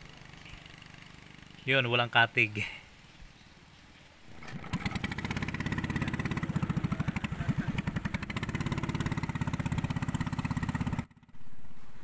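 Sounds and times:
small boat engine running: 0:00.0 - 0:01.7, 0:04.3 - 0:12.0.

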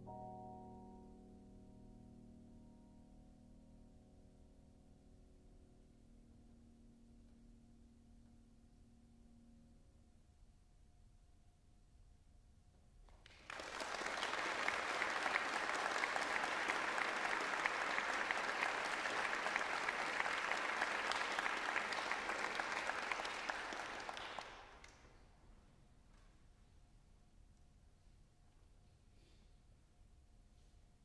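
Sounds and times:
audience applauding: 0:13.2 - 0:25.1.

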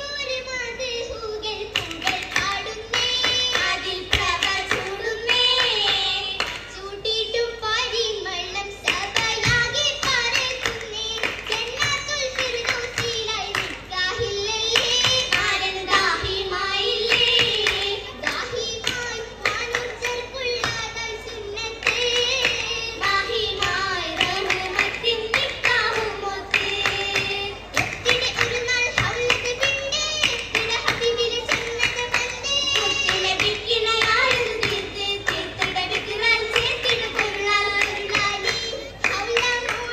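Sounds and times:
rhythmic hand-clapping: 0:00.2 - 0:39.9
voices singing: 0:08.8 - 0:39.9.

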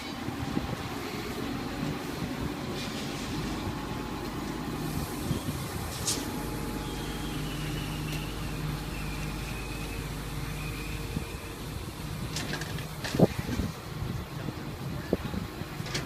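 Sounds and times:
excavator diesel engine running: 0:00.0 - 0:16.0
faint high whine: 0:04.7 - 0:12.2.

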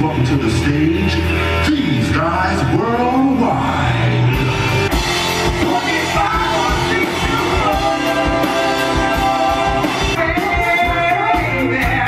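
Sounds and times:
live pop-rock band: 0:00.0 - 0:12.0
person singing: 0:05.4 - 0:12.0.

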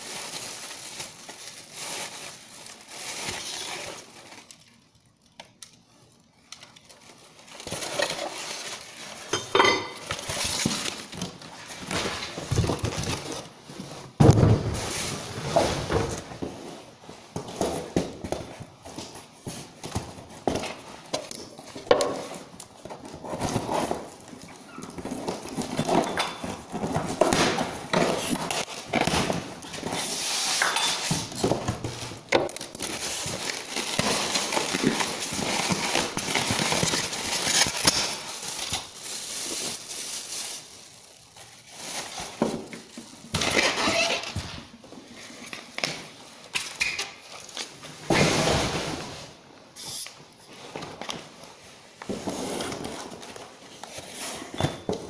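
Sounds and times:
packing rustling and crackling: 0:00.0 - 0:09.4, 0:10.0 - 0:55.0.

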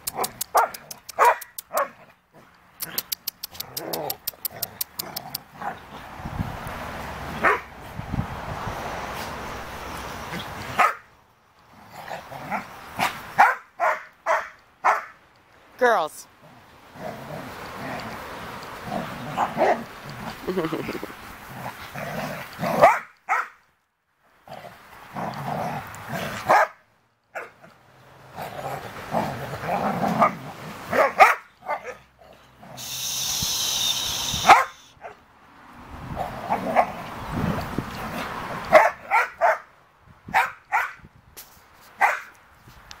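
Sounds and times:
dogs barking: 0:00.1 - 0:02.0, 0:07.4 - 0:07.7, 0:10.4 - 0:11.1, 0:12.5 - 0:15.2, 0:19.3 - 0:19.9, 0:22.8 - 0:23.6, 0:26.4 - 0:27.6, 0:30.2 - 0:32.1, 0:34.4 - 0:35.2, 0:38.7 - 0:39.7, 0:40.3 - 0:41.0, 0:42.0 - 0:42.3.

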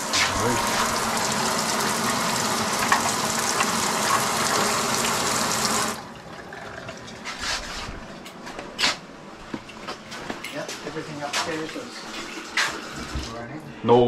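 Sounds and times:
faucet water pouring into basin: 0:00.0 - 0:07.1.

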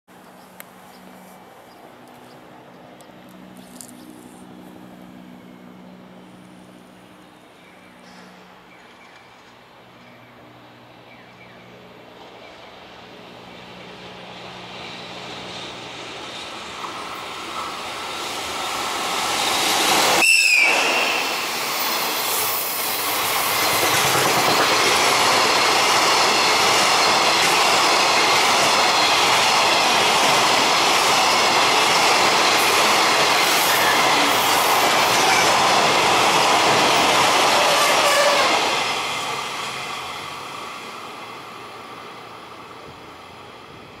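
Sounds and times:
freight train passing: 0:00.1 - 0:44.0
locomotive whistle blast: 0:20.2 - 0:21.5, 0:37.7 - 0:38.6.

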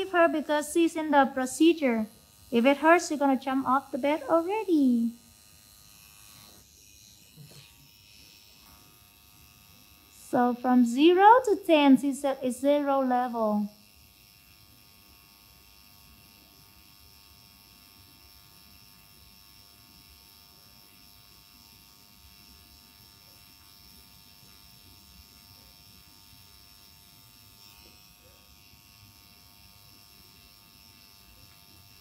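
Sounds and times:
tattoo machine buzzing: 0:00.0 - 0:32.0.

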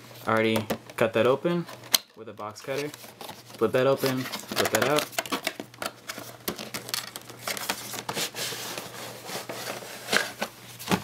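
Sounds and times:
cardboard and plastic rustling: 0:00.3 - 0:11.0.

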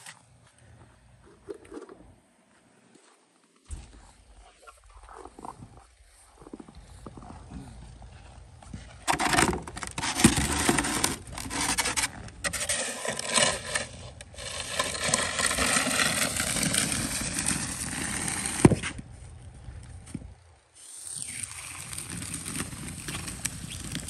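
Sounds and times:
shovel scraping snow on pavement: 0:08.8 - 0:19.0.

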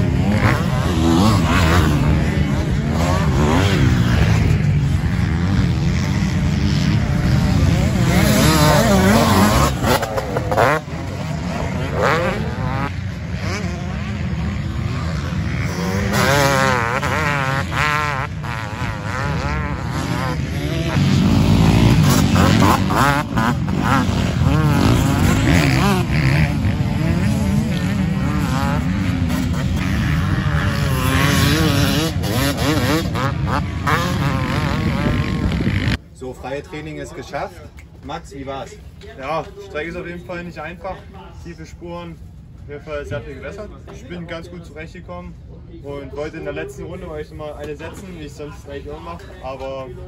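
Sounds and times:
motocross bikes revving: 0:00.0 - 0:36.2.

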